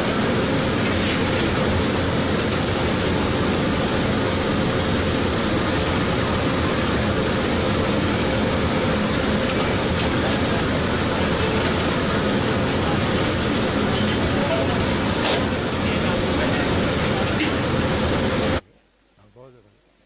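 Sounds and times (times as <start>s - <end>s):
rushing background noise: 0.0s - 18.6s.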